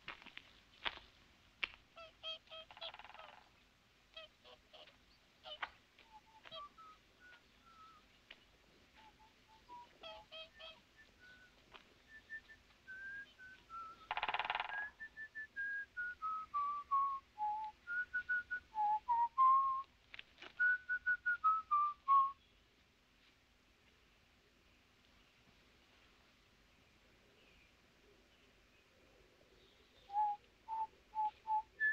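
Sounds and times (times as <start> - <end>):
person whistling a tune: 12.1 - 14.1, 14.8 - 19.8, 20.6 - 22.4.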